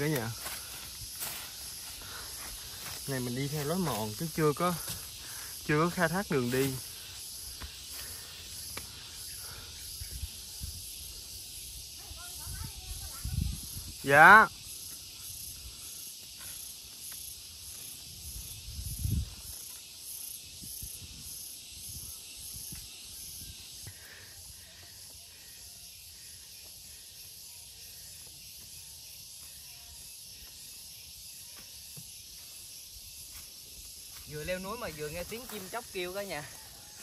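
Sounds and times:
footsteps on trail: 0.0 - 5.6, 6.4 - 9.3
forest insects droning: 0.0 - 37.0.

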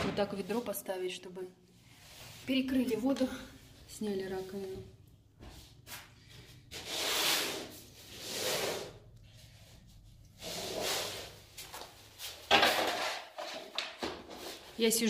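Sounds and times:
rubbing or scraping strokes: 5.9 - 12.4.

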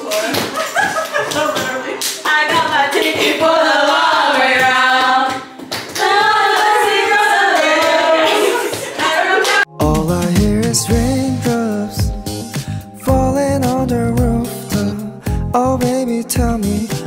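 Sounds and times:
women singing unaccompanied: 1.5 - 9.7.

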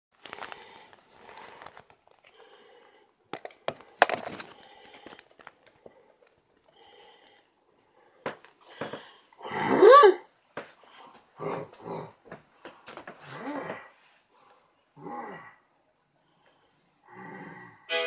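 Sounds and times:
rustling and crinkling: 0.1 - 2.6, 3.3 - 7.0.

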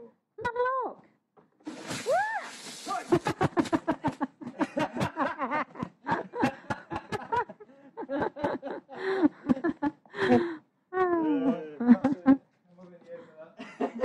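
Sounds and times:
person laughing hard: 2.9 - 10.5.

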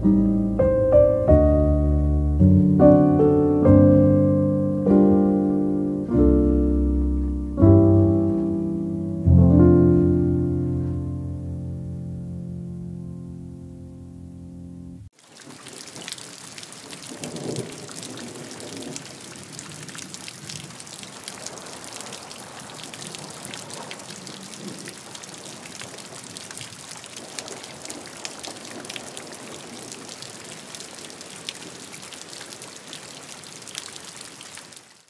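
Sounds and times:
steady rain falling: 15.1 - 35.0.

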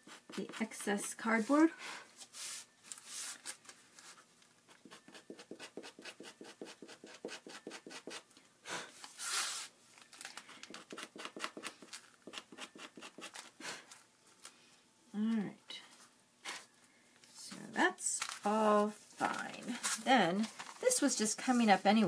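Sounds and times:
knife blade scraping cardboard: 4.9 - 8.2, 10.8 - 13.5.

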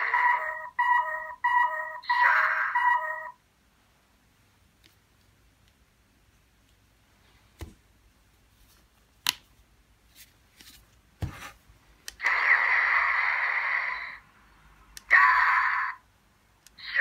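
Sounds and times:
toy speaker electronic sound effect: 0.0 - 3.4, 12.2 - 14.2, 15.0 - 16.0, 16.8 - 17.0.

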